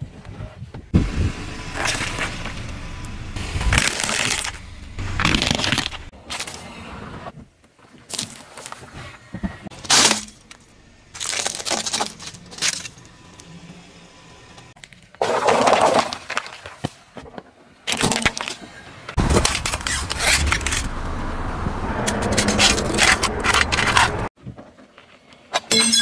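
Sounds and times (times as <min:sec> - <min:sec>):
low rumble: 0:00.9 - 0:06.1, 0:09.7 - 0:14.8, 0:19.2 - 0:24.3
tyre crushing objects on asphalt: 0:01.6 - 0:06.1, 0:09.7 - 0:13.5, 0:19.2 - 0:24.3
paper cups crumpling: 0:09.7 - 0:13.5.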